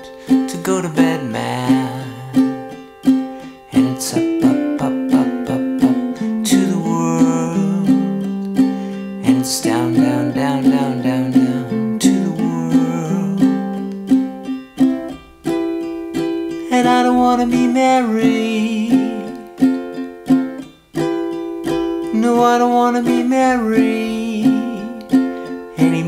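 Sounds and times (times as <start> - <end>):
pop music with strummed strings: 0.0 - 26.0.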